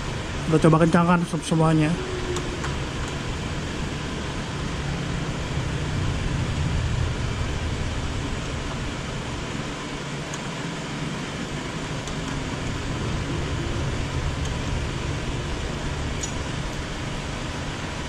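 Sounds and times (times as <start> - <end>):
steady background hum and hiss: 0.0 - 18.0
screwdriver clicks: 16.2 - 16.4.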